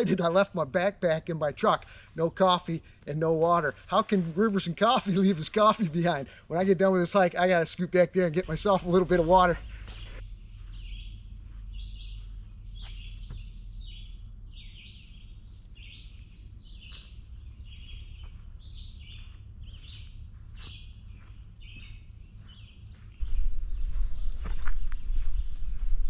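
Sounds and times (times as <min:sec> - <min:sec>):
songbirds singing: 0:00.0 - 0:26.0
steady low rumble: 0:08.2 - 0:26.0.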